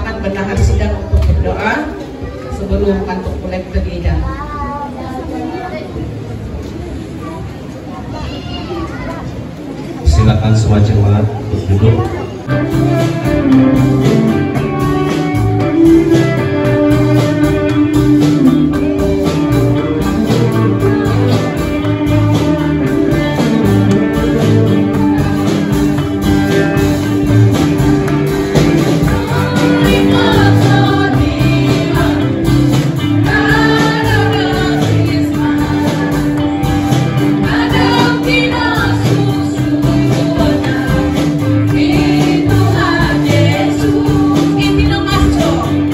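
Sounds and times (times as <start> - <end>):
live band playing worship song: 0.0 - 45.9
women singing: 29.0 - 45.9.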